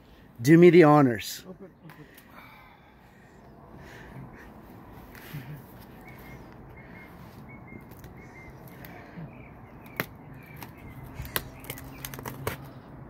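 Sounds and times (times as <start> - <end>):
knife slitting packing tape: 9.8 - 12.7.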